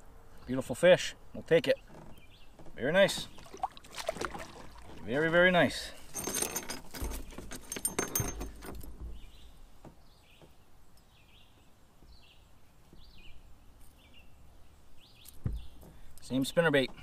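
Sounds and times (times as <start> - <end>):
bird chirping: 1.7 - 3.6, 9.0 - 17.0.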